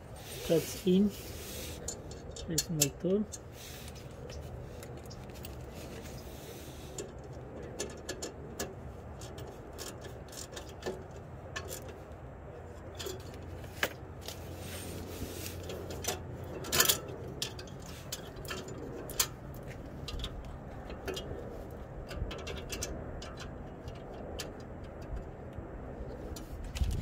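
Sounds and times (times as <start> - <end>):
low background rumble: 0.0 - 27.0
metal hardware rattle: 0.2 - 12.0, 12.7 - 14.2, 15.3 - 25.2
light metallic clicks and taps: 1.8 - 6.3, 15.5 - 27.0.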